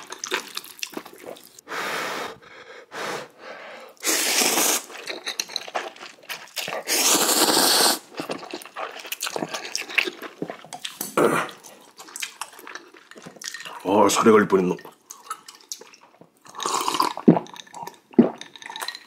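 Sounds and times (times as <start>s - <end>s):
wet chewing and lip smacks: 0.0s - 1.6s, 4.8s - 13.8s, 14.8s - 19.0s
person slurping noodles: 1.2s - 10.2s, 16.6s - 18.9s.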